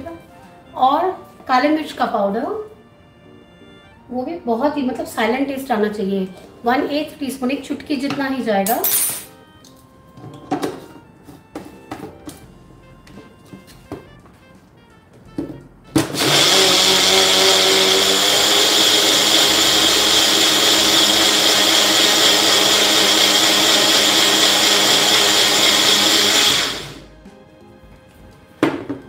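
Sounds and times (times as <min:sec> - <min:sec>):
blender motor whining: 0:15.9 - 0:27.1.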